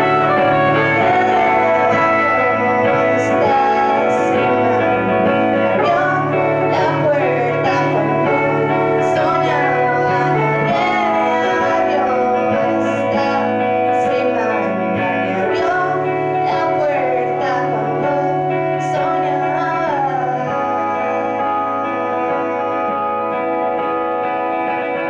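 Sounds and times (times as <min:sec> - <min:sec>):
woman singing: 0:00.0 - 0:24.9
electric guitars playing: 0:00.0 - 0:25.0.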